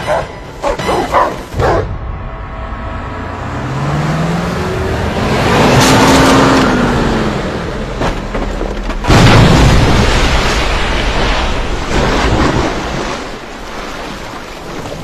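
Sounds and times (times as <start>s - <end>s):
car engine revving: 1.9s - 8.0s
loud explosion: 9.1s - 12.6s.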